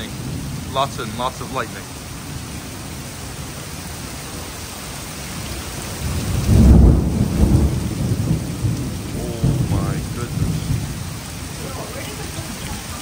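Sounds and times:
heavy rain falling: 0.0s - 13.0s
low rumble of thunder: 5.4s - 12.9s.

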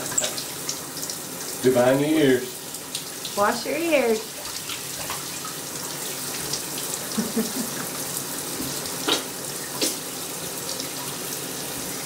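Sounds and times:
shower water spraying and splashing: 0.0s - 12.0s
sharp water splashes: 9.0s - 10.1s.

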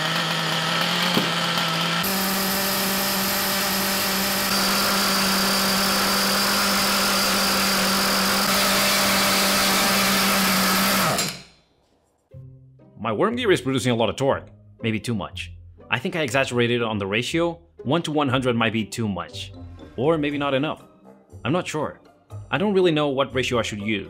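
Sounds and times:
small two-stroke engine running: 0.0s - 11.3s.

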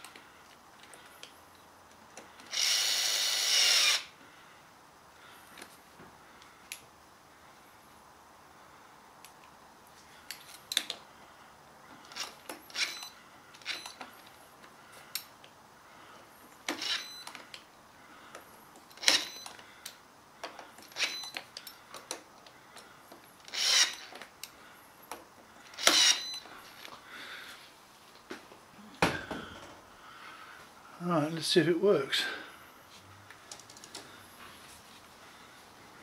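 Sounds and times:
cordless drill driving screws: 2.4s - 4.1s, 12.1s - 14.0s, 16.7s - 17.1s, 19.0s - 19.4s, 23.4s - 24.2s, 25.7s - 26.4s.

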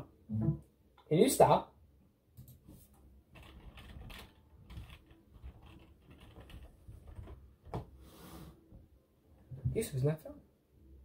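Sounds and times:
typing on computer keyboard: 3.3s - 7.4s.

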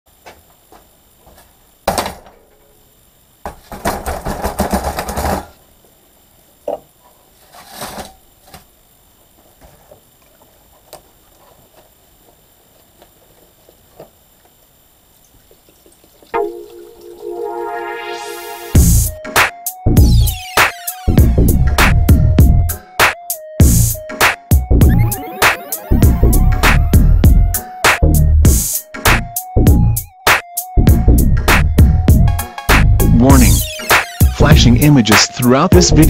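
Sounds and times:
music: 16.4s - 36.0s.

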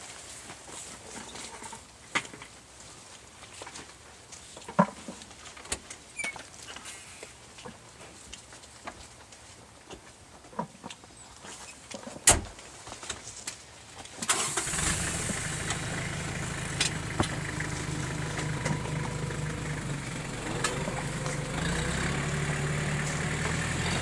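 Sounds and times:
tractor engine starting and running: 14.2s - 24.0s.

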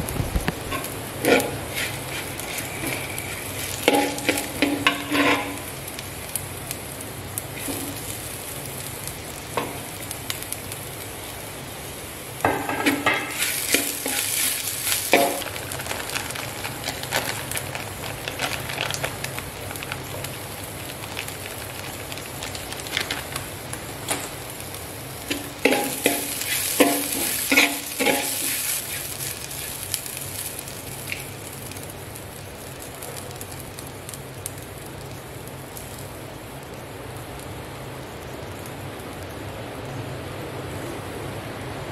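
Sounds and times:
food sizzling in oil: 0.0s - 40.0s
metal spatula scraping pan: 0.7s - 5.6s, 25.3s - 29.1s.

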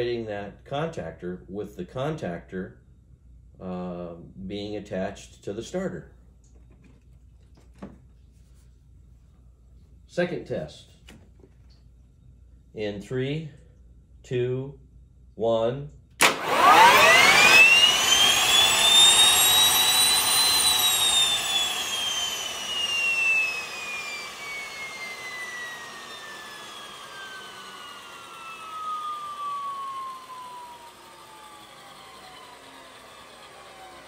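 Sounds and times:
gas turbine whine: 16.2s - 34.0s.

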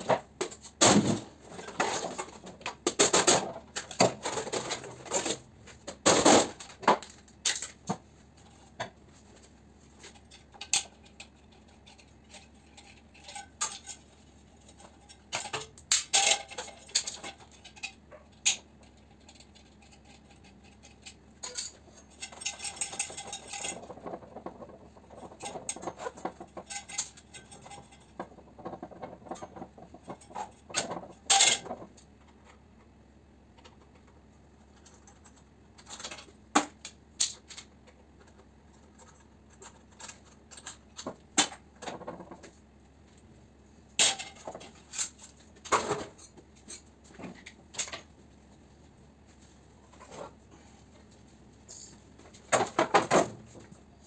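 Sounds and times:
sheet metal clanks and rattles: 10.0s - 32.6s.

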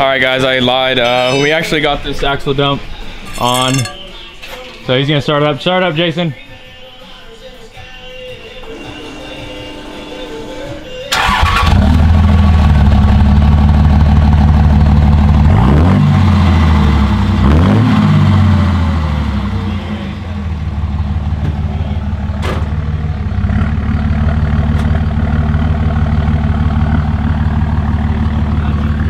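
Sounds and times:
diesel truck engine revving and idling: 11.1s - 29.0s.

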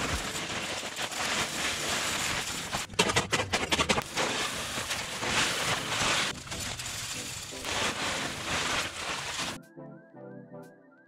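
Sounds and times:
gravel pouring rattle: 0.0s - 9.6s
steady hiss: 4.1s - 9.6s.

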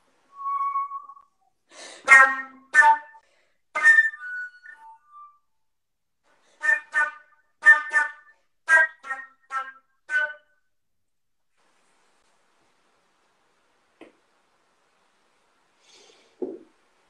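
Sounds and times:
solo flute playing: 0.3s - 1.4s, 3.8s - 5.5s, 6.6s - 10.5s.

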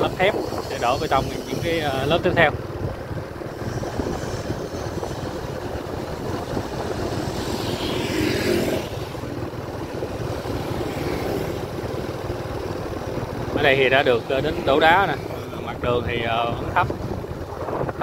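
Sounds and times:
vehicle rumbling along road: 0.0s - 18.0s
vehicle passing by: 3.6s - 18.0s.

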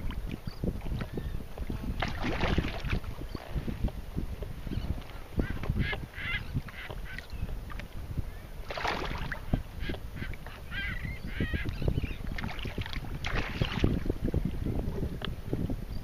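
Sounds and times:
waves slapping against kayak hull: 0.0s - 10.6s, 11.7s - 15.6s
wind rumble on microphone: 0.0s - 16.0s
seabirds calling: 4.5s - 13.9s.

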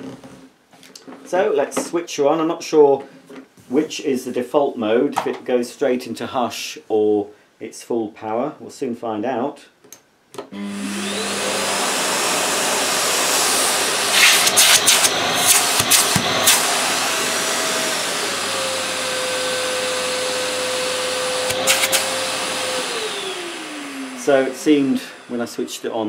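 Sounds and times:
vacuum cleaner motor whining: 10.5s - 26.0s.

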